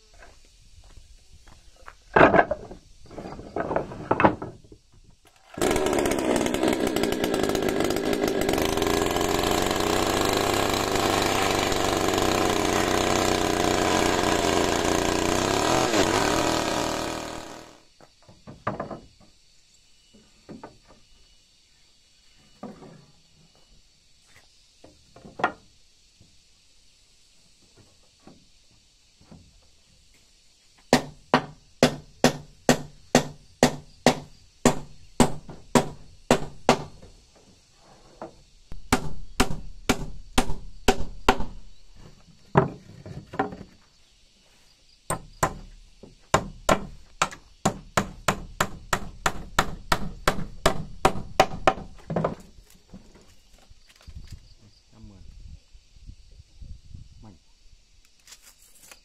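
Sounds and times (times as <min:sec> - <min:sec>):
hammer driving nails into wood: 0:30.9 - 0:37.0, 0:38.9 - 0:41.6, 0:46.4 - 0:51.9.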